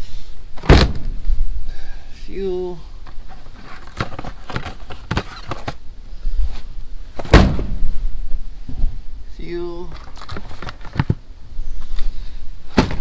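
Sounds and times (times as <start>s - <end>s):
loud thump: 0.6s - 1.2s, 7.2s - 8.0s, 12.7s - 13.0s
boxes knocking and scraping on shelf: 3.3s - 5.8s, 12.7s - 13.0s.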